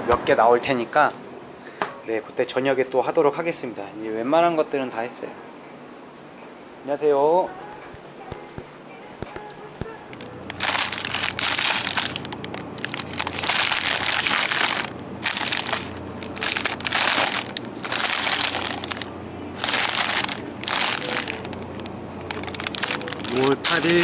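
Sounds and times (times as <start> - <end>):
wrappers crinkling and rustling: 10.1 - 24.0.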